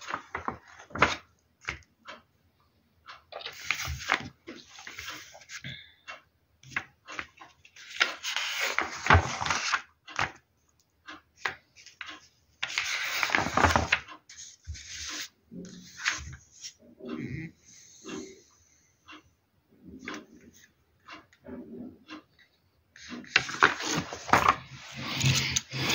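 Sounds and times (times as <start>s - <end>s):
magazine pages rustling: 0.0s - 1.8s, 3.4s - 5.6s, 6.6s - 10.4s, 12.6s - 16.8s, 23.2s - 25.8s.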